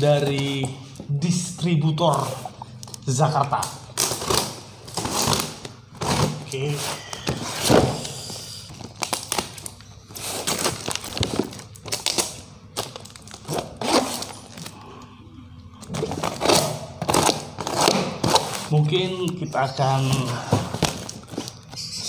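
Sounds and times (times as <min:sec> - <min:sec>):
scissors cutting packing tape: 0:15.9 - 0:18.7.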